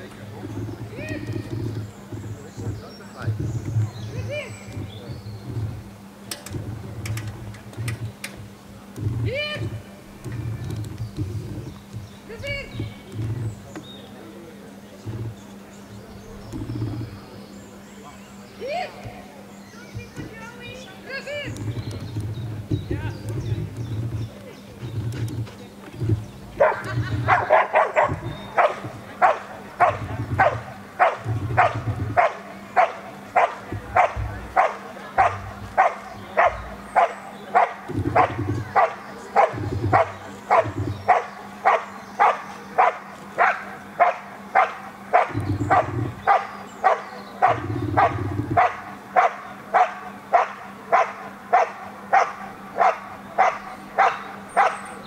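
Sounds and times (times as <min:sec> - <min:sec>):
dog barking rhythmically: 0:26.6 - 0:54.8.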